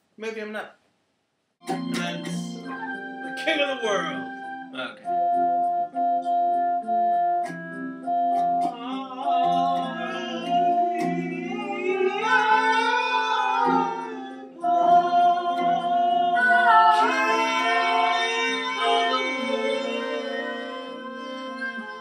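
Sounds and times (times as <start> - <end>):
electronic keyboard organ chords: 1.6 - 22.0
man singing: 8.6 - 22.0.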